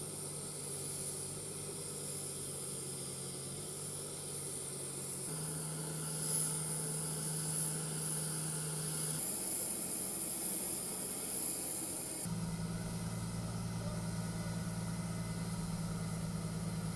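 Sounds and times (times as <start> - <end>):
high engine whine: 0.0 - 9.8, 11.9 - 16.9
engines humming: 12.3 - 16.9.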